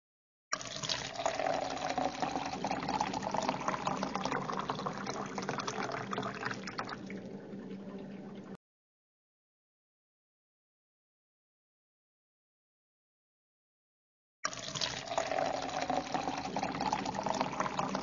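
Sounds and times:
water pouring into a glass: 0:00.5 - 0:08.6, 0:14.4 - 0:18.0.

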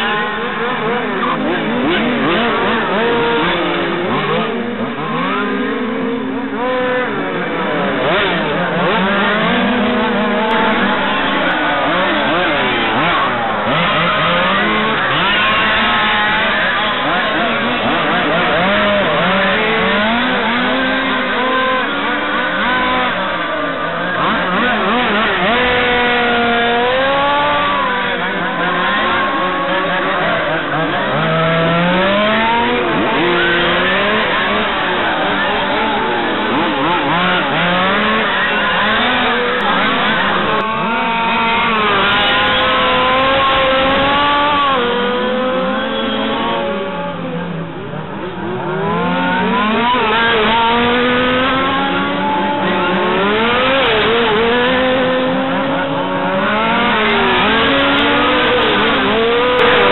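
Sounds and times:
rc car engines buzzing: 0:00.0 - 0:59.9.

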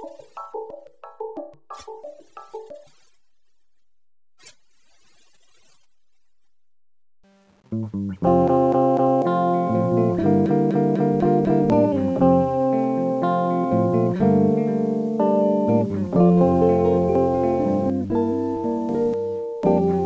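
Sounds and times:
ambient music: 0:07.8 - 0:20.0.

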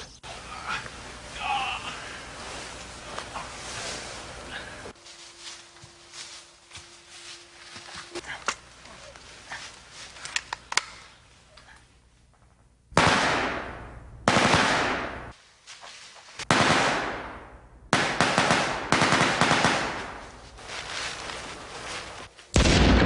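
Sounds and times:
automatic gunfire bursts: 0:14.3 - 0:15.2, 0:16.5 - 0:17.3, 0:17.9 - 0:20.2.

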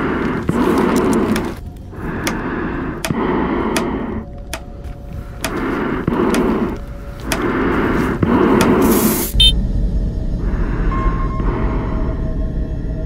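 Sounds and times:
breathing through respirator mask: 0:00.0 - 0:09.5
sharp ticks: 0:03.0 - 0:07.5.

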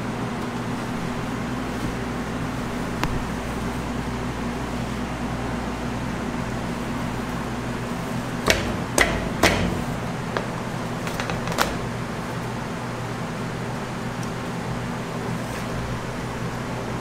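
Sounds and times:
low steady hum: 0:00.0 - 0:17.0
metal tray knocking on steel frame: 0:08.5 - 0:11.8.

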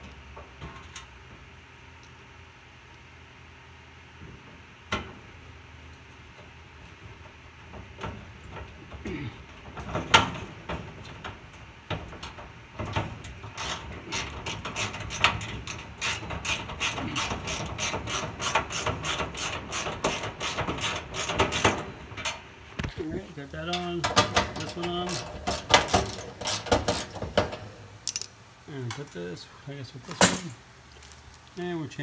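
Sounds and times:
tools and metal parts knocking: 0:23.7 - 0:29.1
hand ratchet clicking: 0:24.6 - 0:27.2.

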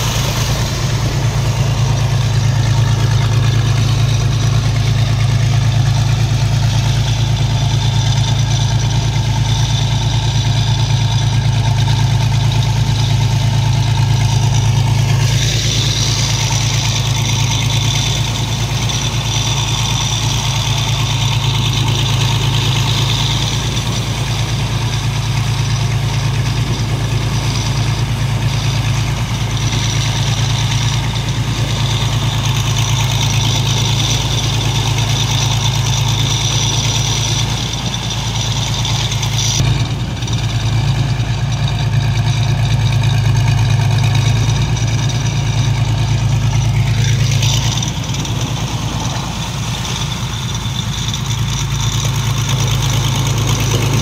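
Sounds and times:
diesel engine droning: 0:00.0 - 0:54.0
rushing water hiss: 0:00.0 - 0:54.0.

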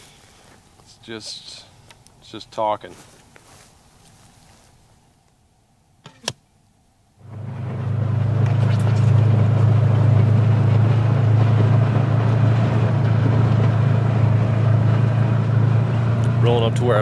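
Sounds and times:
rattling driving noise: 0:00.8 - 0:02.5, 0:07.2 - 0:17.0
vehicle engine droning: 0:07.2 - 0:17.0.

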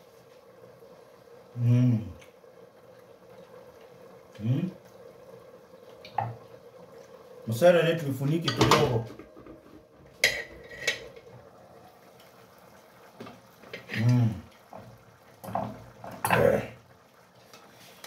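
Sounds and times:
man humming: 0:01.6 - 0:02.2, 0:14.0 - 0:14.5
metal cookware clinking on a pan: 0:10.2 - 0:11.1
spoon clattering in a pan: 0:10.2 - 0:11.2.

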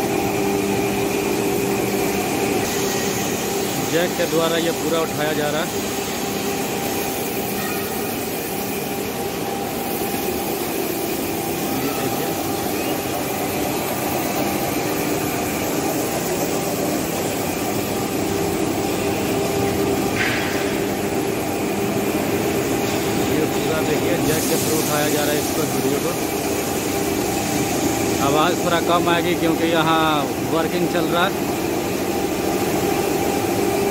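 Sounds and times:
workshop noise: 0:00.0 - 0:33.9
high-pitched hiss: 0:23.3 - 0:26.2.

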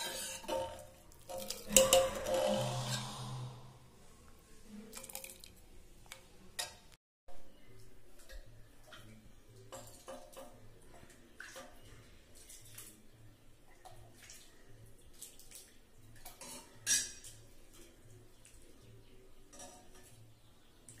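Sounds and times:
metal ladle scraping a pot: 0:00.0 - 0:04.1, 0:16.4 - 0:17.4.

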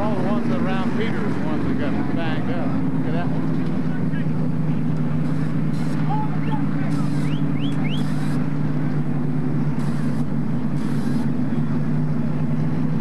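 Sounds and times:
stock car engine drone: 0:00.0 - 0:13.0
short hissing bursts: 0:09.8 - 0:10.2, 0:10.8 - 0:11.3.

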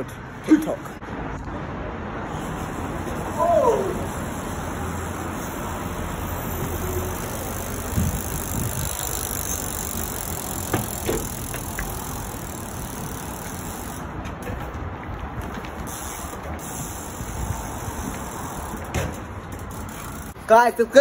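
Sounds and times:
bicycle rolling over brick paving: 0:06.1 - 0:20.4
bike knocking on wall and ground: 0:06.5 - 0:16.6, 0:18.8 - 0:20.3.

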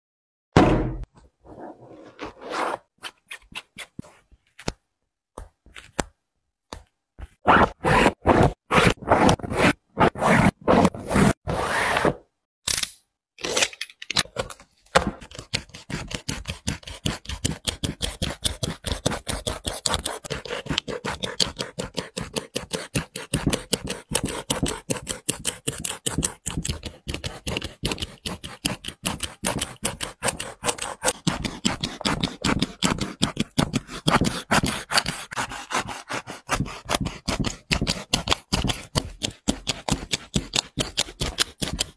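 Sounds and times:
knife scraping through shoe seam: 0:01.8 - 0:04.2, 0:07.4 - 0:12.2, 0:15.2 - 0:41.9.

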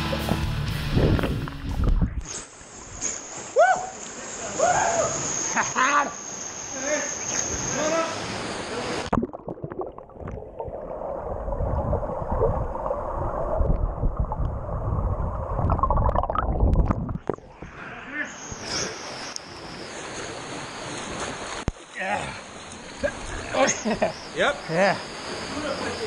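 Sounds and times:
water slapping and splashing: 0:00.0 - 0:04.2, 0:18.7 - 0:23.9
muffled underwater churning: 0:09.0 - 0:17.9.

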